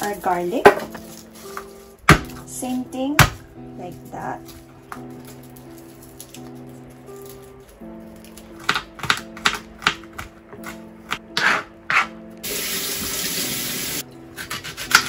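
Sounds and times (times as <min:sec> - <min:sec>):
background music: 0:00.0 - 0:15.0
knife chopping on plastic board: 0:02.1 - 0:02.4, 0:03.2 - 0:03.4, 0:08.6 - 0:12.1, 0:14.4 - 0:15.0.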